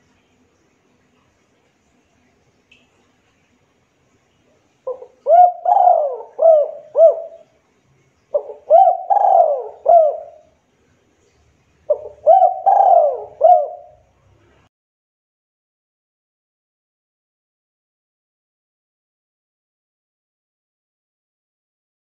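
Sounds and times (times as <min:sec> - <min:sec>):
dove cooing: 0:04.9 - 0:07.5, 0:08.3 - 0:10.5, 0:11.9 - 0:14.1.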